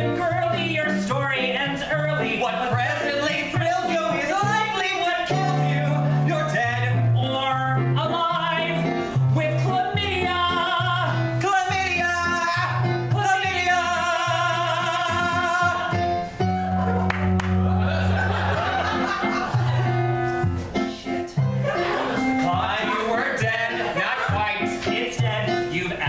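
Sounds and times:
keyboard: 0.0s - 26.0s
men singing a show tune: 22.4s - 26.0s.

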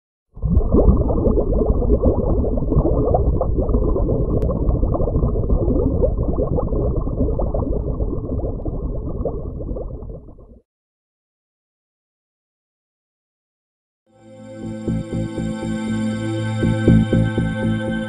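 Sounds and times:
muffled underwater bubbling: 0.4s - 10.6s.

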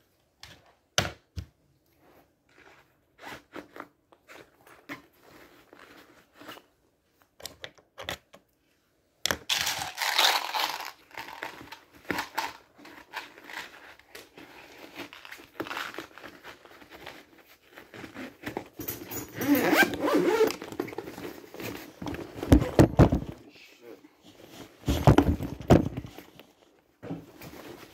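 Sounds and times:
handling rustling and scraping: 1.9s - 7.4s, 9.6s - 23.5s, 24.1s - 27.9s.

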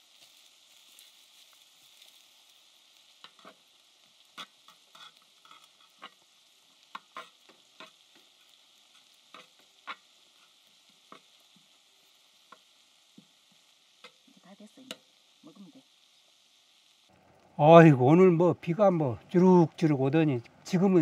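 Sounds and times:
fried rice sizzling: 0.0s - 21.0s
utensils scraping metal griddle: 4.3s - 6.2s, 6.9s - 8.0s.

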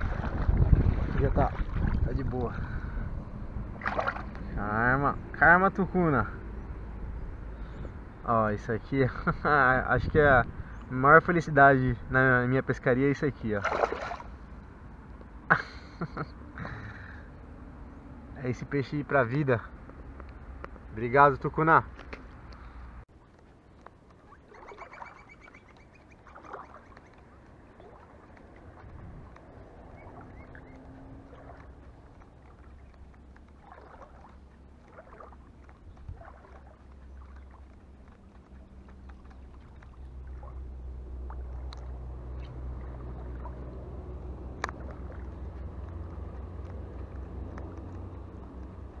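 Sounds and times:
wind rumble on microphone: 0.0s - 12.8s, 27.2s - 49.0s.

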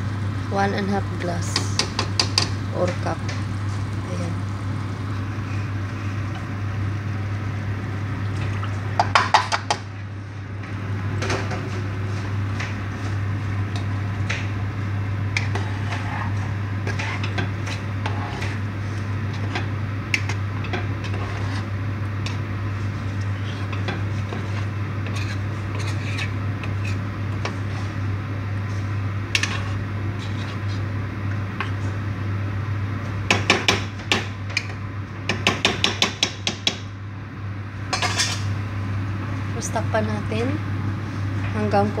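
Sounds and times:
low steady hum: 0.0s - 42.0s
metal spoon scraping a pot: 21.0s - 21.7s, 23.4s - 27.0s.

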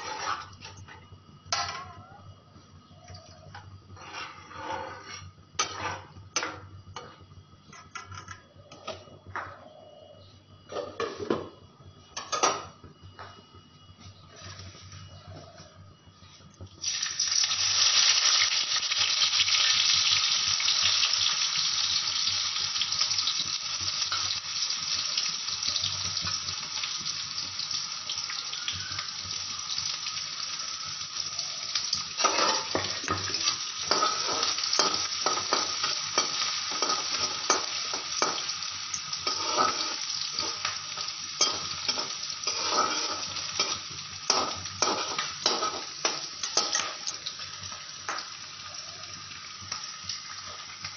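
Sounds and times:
spatula scraping a wok: 0.0s - 0.8s, 3.9s - 7.2s, 14.3s - 15.1s, 32.2s - 47.0s
vegetables sizzling in hot oil: 16.8s - 50.9s.

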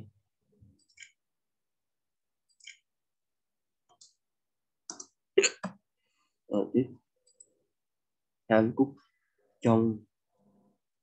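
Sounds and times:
computer mouse clicks: 0.8s - 1.2s, 4.8s - 5.8s.

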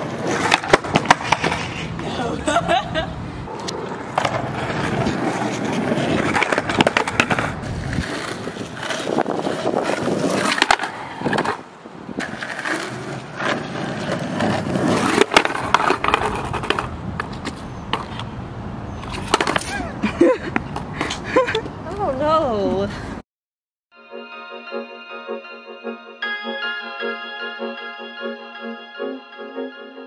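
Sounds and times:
skateboard clacking on ground: 0.0s - 2.3s, 3.5s - 18.4s, 19.0s - 22.3s
skateboard wheels rolling on concrete: 0.0s - 23.2s.

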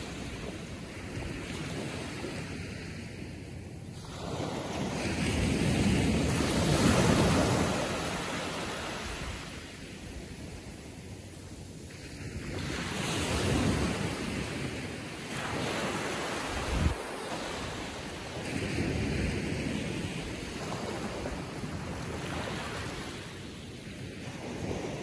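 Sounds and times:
waves washing onto beach: 0.0s - 25.0s.

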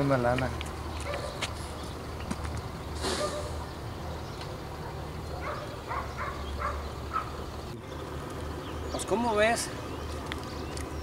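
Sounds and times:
dog barking: 1.0s - 1.4s, 3.2s - 3.5s, 4.8s - 7.4s
brief rush of noise: 3.0s - 3.6s.

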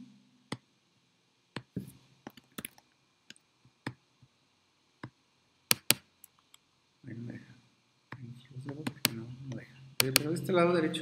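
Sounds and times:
mouse and keyboard clicking: 2.3s - 2.8s, 5.7s - 6.6s, 10.0s - 10.3s.

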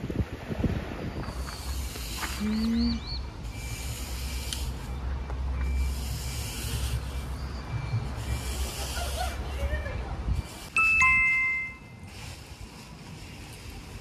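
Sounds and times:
high chirps: 1.2s - 12.2s
brief pitched tone: 10.8s - 12.1s.

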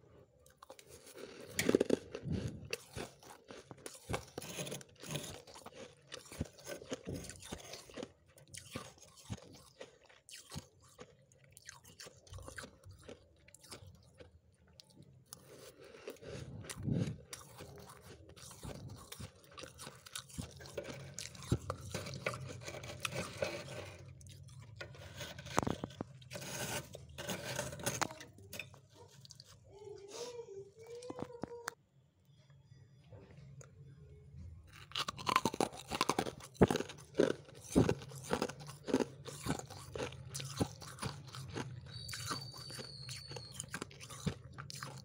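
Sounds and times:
frost being crunched and chewed: 0.4s - 28.3s, 34.7s - 45.0s.

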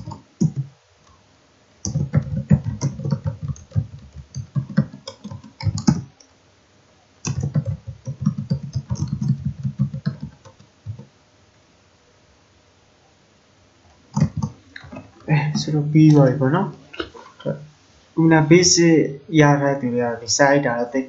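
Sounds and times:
typing on computer keyboard: 0.0s - 0.7s, 1.8s - 6.2s, 7.2s - 11.1s, 14.1s - 14.6s.

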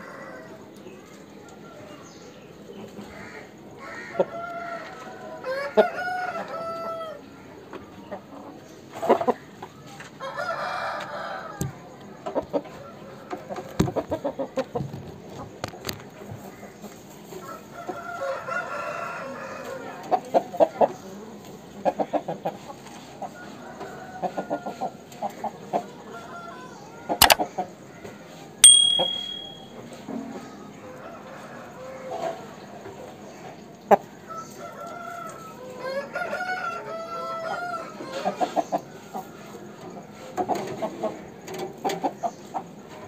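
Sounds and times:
high steady tone: 28.6s - 29.7s.

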